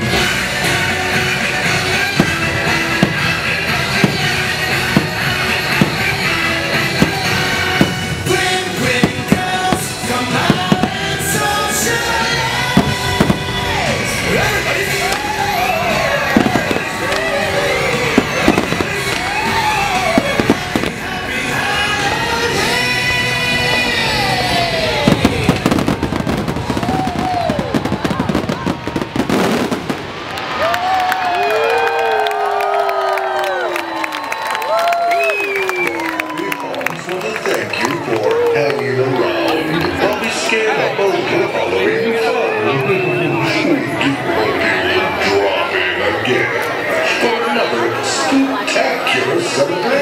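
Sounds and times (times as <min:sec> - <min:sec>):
loud music playing: 0:00.0 - 0:26.8
fireworks bangs and crackles: 0:00.0 - 0:32.2.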